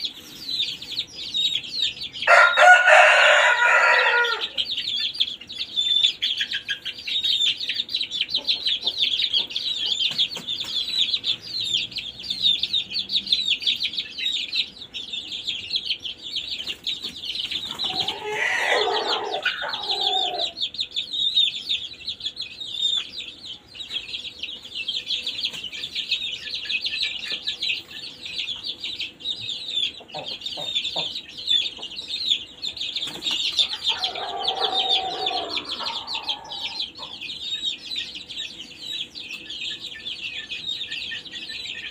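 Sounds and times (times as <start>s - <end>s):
chicks peeping: 0.0s - 41.9s
rooster crowing: 2.2s - 4.6s, 17.9s - 20.6s, 33.7s - 36.9s.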